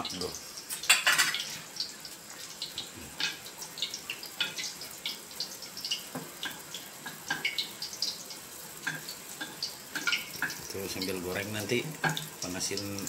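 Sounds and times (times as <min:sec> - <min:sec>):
faint steady hiss: 0:00.0 - 0:13.0
broth bubbling and popping: 0:08.8 - 0:13.0.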